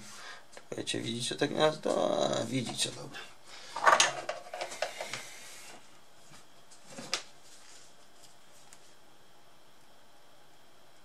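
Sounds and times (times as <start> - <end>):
tools clattering on a workbench: 3.8 - 4.9.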